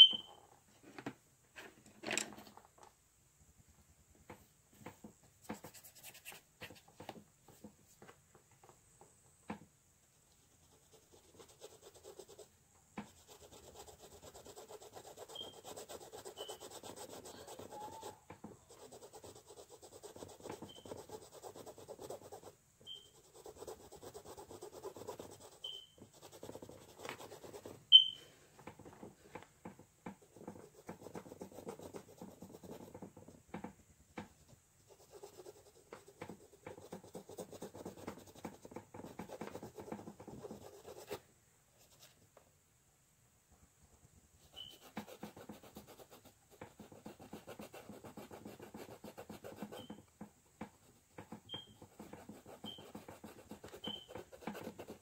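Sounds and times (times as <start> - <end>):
high squeaks: 0.0 - 0.4, 15.3 - 15.6, 22.8 - 23.2, 25.6 - 26.0, 27.9 - 28.3, 44.6 - 44.9, 51.5 - 51.8, 52.6 - 53.0, 53.8 - 54.2
paintbrush rubbing on canvas: 10.4 - 28.2, 30.2 - 33.4, 34.2 - 41.2, 44.4 - 50.0, 50.6 - 55.0.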